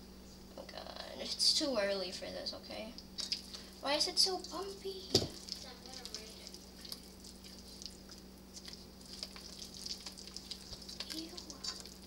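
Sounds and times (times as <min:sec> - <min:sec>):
spoon stirring thick batter: 0:05.3 - 0:12.0.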